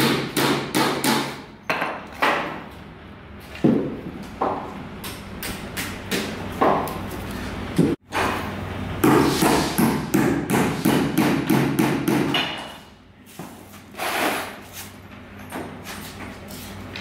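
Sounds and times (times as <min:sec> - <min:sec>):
hammer nailing wood: 0:00.0 - 0:02.5, 0:09.0 - 0:12.7.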